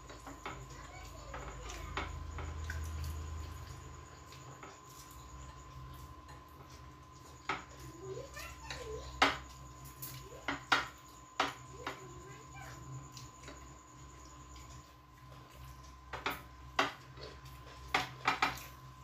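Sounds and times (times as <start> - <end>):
fingers working rice on plates: 0.0 - 13.8, 14.4 - 18.9.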